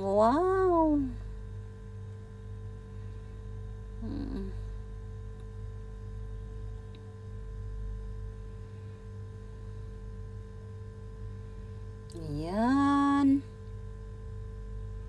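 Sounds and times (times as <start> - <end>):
woman's voice: 0.0 - 1.3, 4.0 - 4.6, 12.1 - 13.5
low kitchen hum: 0.0 - 15.0.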